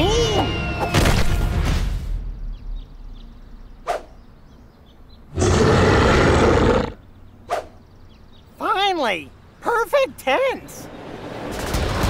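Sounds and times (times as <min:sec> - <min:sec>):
dinosaur roar: 0:05.3 - 0:07.0.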